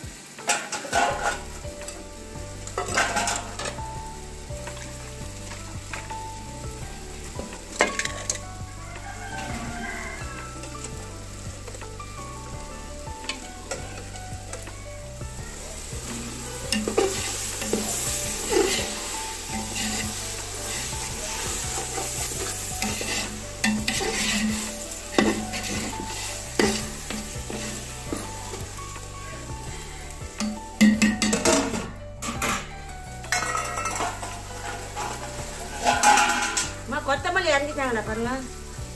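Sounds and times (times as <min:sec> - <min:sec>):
sauce sizzling in a pot: 0:00.0 - 0:38.9
metal ladle scraping a pot: 0:00.5 - 0:01.6, 0:02.7 - 0:03.9, 0:07.2 - 0:08.4, 0:15.6 - 0:32.7, 0:33.3 - 0:36.9.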